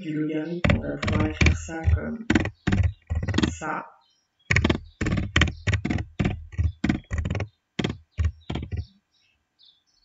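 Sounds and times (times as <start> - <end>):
keyboard typing: 0.6 - 3.7, 4.5 - 8.9.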